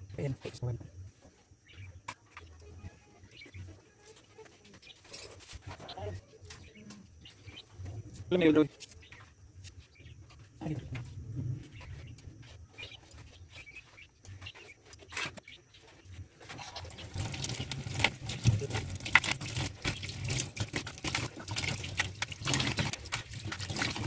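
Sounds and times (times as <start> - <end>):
tap water running into sink: 16.8 - 24.0.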